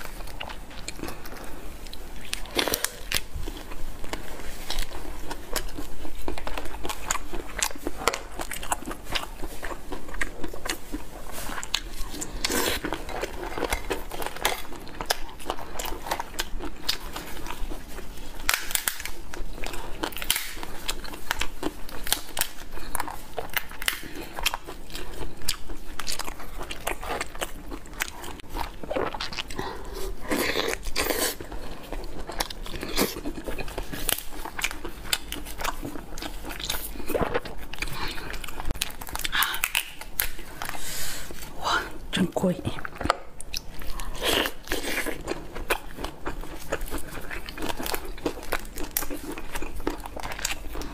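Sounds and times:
chewing: 0.0 - 42.0, 42.7 - 50.9.

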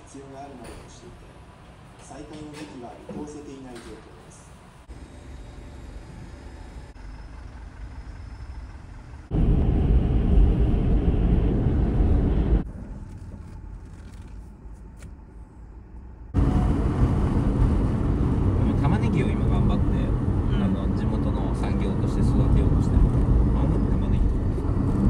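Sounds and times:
outdoor ambience: 0.0 - 25.0
car road and wind noise: 6.1 - 25.0.

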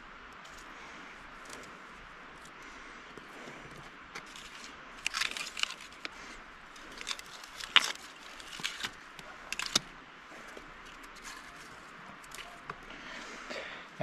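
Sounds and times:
sharp scrapes and snaps: 3.2 - 12.8.

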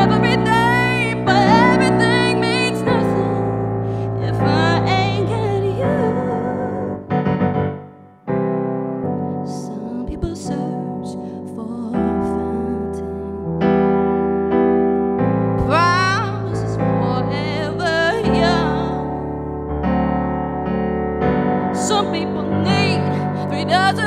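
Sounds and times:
woman singing: 0.0 - 7.1, 9.4 - 13.5, 15.6 - 19.4, 21.7 - 24.0
keyboard piano chords: 0.0 - 24.0.

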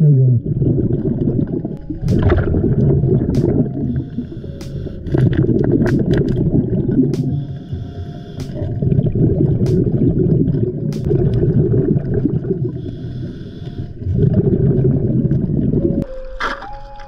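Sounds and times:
exhaled bubbles rumbling: 0.0 - 4.4, 5.0 - 13.2, 13.9 - 16.1
sharp clicks: 4.5 - 4.9, 8.4 - 8.7.

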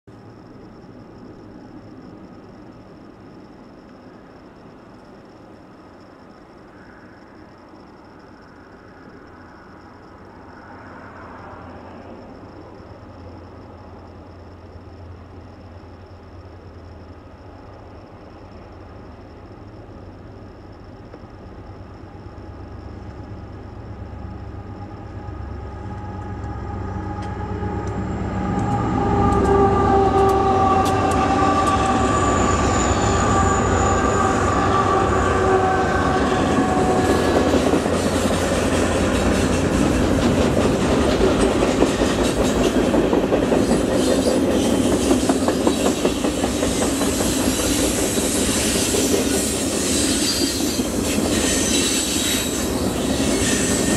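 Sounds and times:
diesel locomotives passing: 0.1 - 53.9
freight cars rumbling: 21.5 - 53.9
sustained high tones: 24.4 - 38.0
clickety-clack of train wheels: 25.8 - 53.9.

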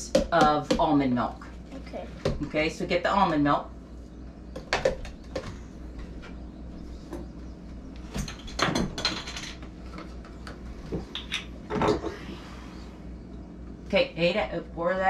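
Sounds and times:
kitchen things clattering: 8.2 - 9.7.

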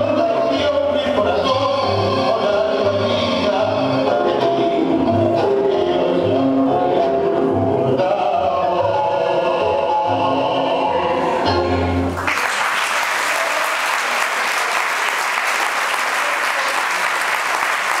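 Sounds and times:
tango music with pulsing bass: 0.0 - 12.2
audience applause: 12.1 - 18.0.

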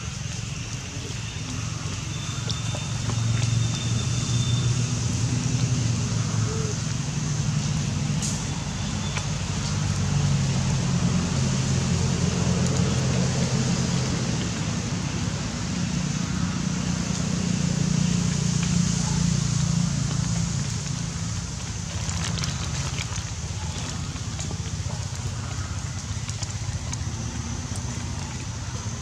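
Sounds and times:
outdoor background rumble: 0.0 - 29.0.

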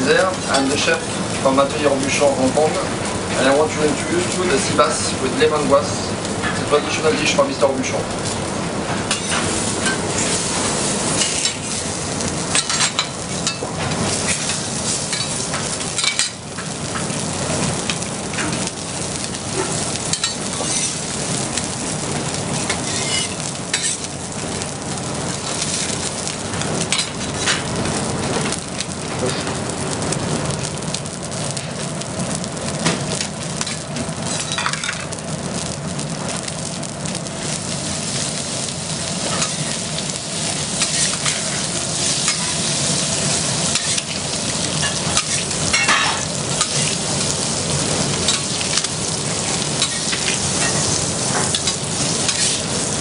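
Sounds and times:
food sizzling in a pan: 0.0 - 53.0.

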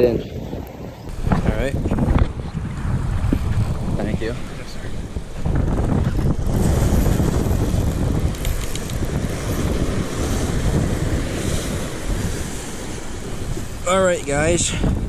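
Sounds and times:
wind buffeting microphone: 0.0 - 15.0
small waves washing on rocks: 6.3 - 14.7.

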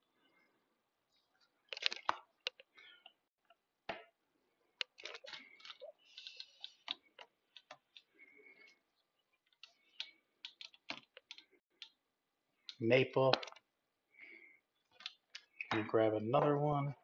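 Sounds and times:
plastic sleeves rustling: 1.1 - 3.3, 4.6 - 11.9.

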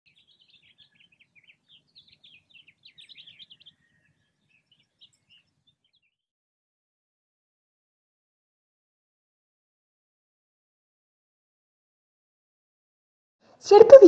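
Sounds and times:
faint birdsong chirps: 0.1 - 6.2.

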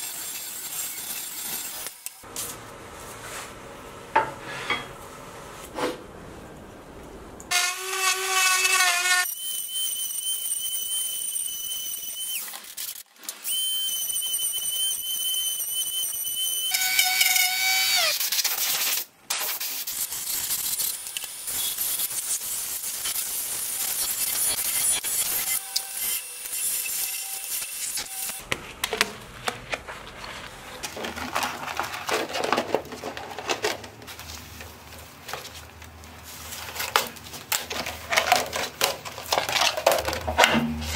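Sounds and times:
plastic sheet crinkling: 28.4 - 40.4.

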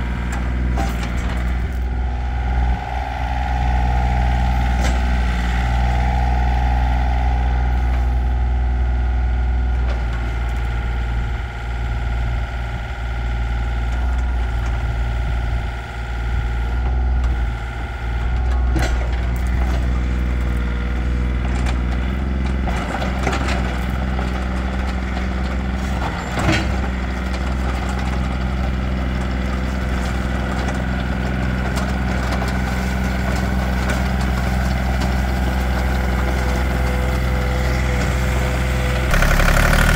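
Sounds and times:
hydraulics working: 0.0 - 8.5
excavator diesel engine running: 0.0 - 39.9.

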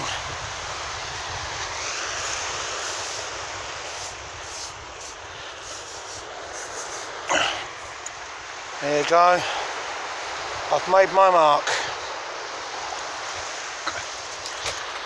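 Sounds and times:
scratching in sand: 0.0 - 10.4, 11.9 - 15.0
wind on microphone: 0.0 - 11.1
surf: 0.0 - 15.0.

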